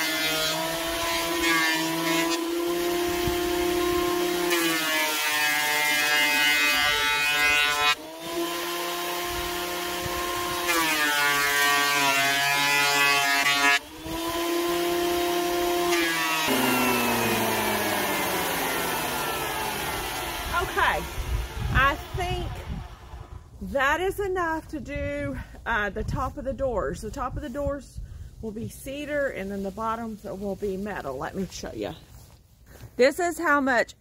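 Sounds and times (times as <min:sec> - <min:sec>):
thickness planer planing boards: 0:00.0 - 0:23.3
motor winding down whine: 0:16.1 - 0:23.4.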